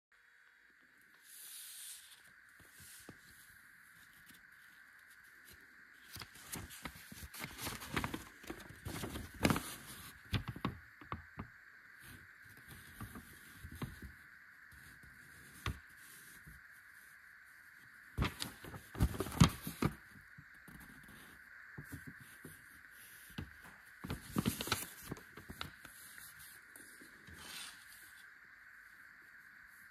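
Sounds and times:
faint steady hiss: 0.2 - 29.9
paper crinkling and rustling: 1.9 - 11.5, 12.1 - 14.2, 18.2 - 28.3.

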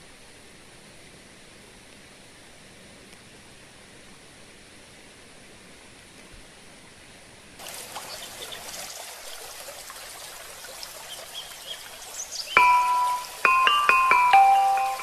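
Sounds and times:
faint steady hiss: 0.0 - 15.0
water trickling and gurgling: 7.6 - 15.0.

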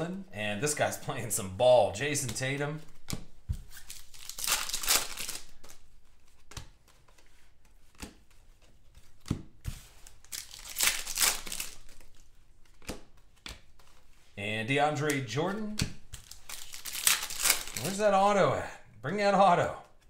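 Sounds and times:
cards flipping and sliding: 2.1 - 14.4, 15.0 - 18.1
foil wrapper crinkling and tearing: 3.8 - 5.7, 10.1 - 12.2, 16.2 - 18.0.

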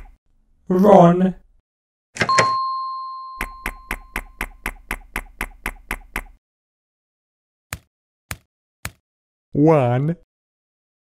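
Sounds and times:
cartoon footsteps: 3.4 - 6.4, 7.7 - 9.0.

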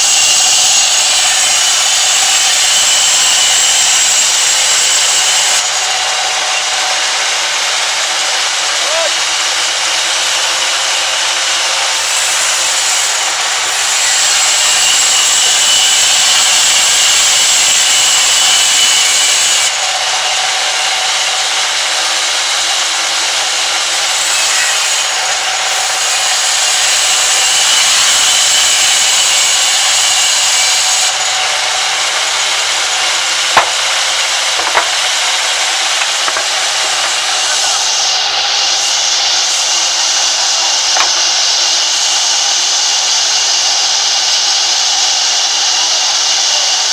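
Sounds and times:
band saw cutting through log: 0.0 - 46.9
sharp knocks: 33.6 - 35.2, 36.0 - 37.3.

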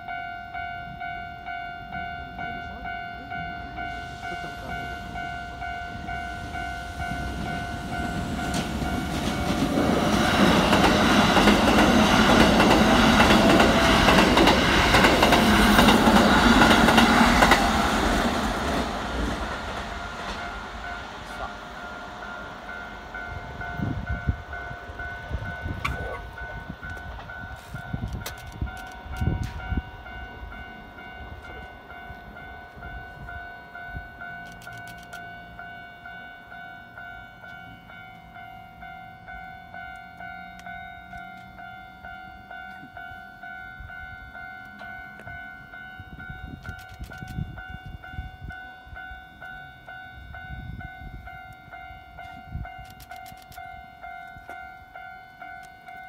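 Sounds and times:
train wheels rumbling on rails: 0.9 - 56.0
level crossing bell ringing: 20.4 - 46.6.

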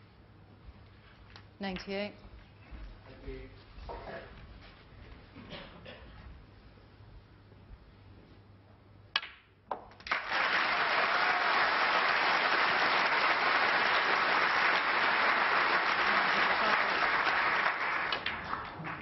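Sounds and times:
audience applause: 10.0 - 19.0.

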